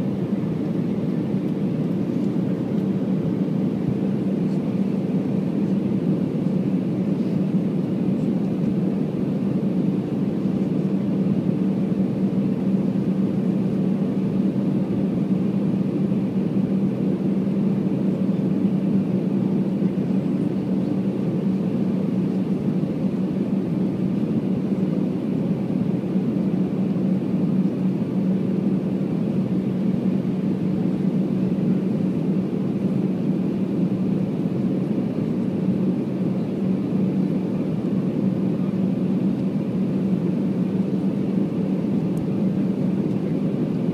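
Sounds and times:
airliner cabin drone: 0.0s - 43.9s.

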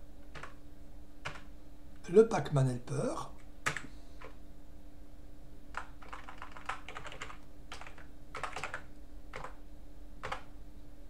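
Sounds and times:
faint steady hum: 0.0s - 11.0s
computer keyboard typing: 0.3s - 0.6s, 1.2s - 1.5s, 3.6s - 4.4s, 5.7s - 9.6s, 10.2s - 10.5s.

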